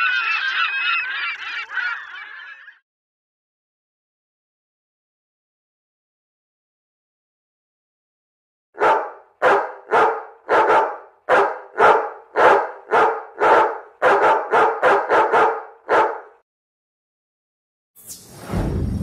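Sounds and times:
dog barking: 0:08.8 - 0:16.4.

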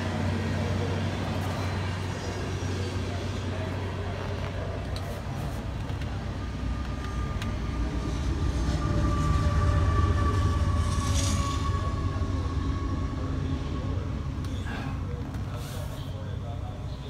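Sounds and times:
low mechanical rumble: 0:00.0 - 0:17.0.

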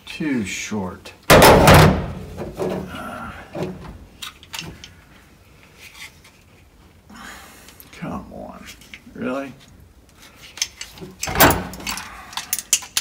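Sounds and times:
loud bang: 0:01.3 - 0:02.4.

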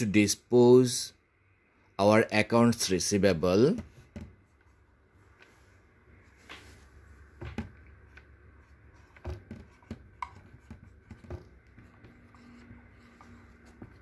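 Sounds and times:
marker writing on whiteboard: 0:07.5 - 0:14.0.

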